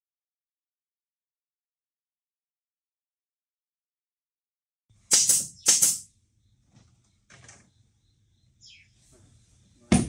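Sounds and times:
paint spray gun hissing: 5.1 - 6.1.

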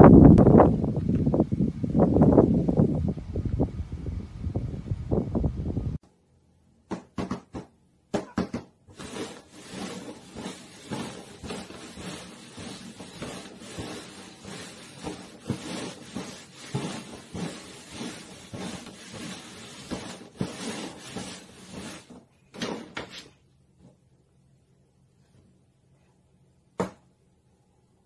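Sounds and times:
paper cups scraping on cardboard: 8.9 - 23.3.

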